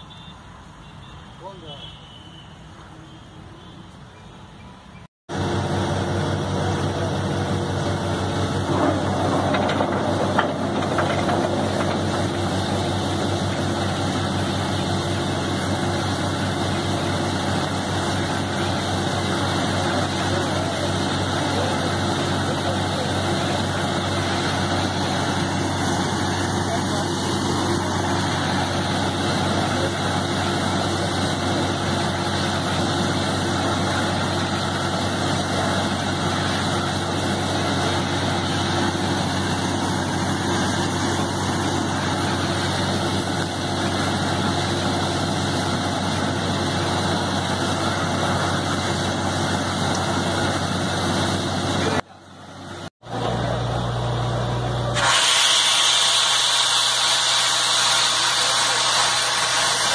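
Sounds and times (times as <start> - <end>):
dense rushing noise: 5.3 - 19.4
engine and compressor drone: 5.3 - 59.9
compressed air hissing rush: 55.0 - 59.9.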